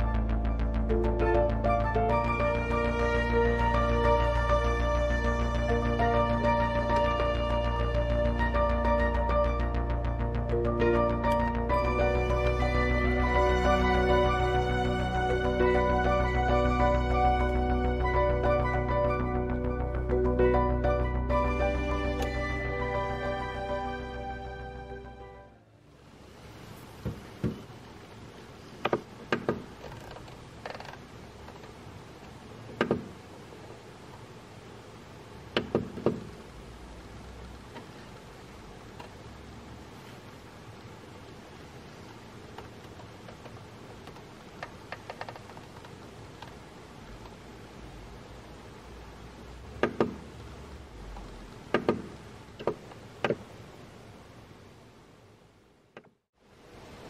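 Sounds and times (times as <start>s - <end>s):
low steady hum: 0.0s - 44.9s.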